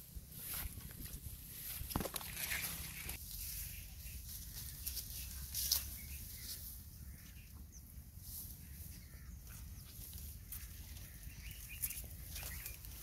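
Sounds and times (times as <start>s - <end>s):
grass rustling as donkey grazes: 0.0s - 7.5s, 8.1s - 13.0s
faint bird chirps: 3.4s - 13.0s.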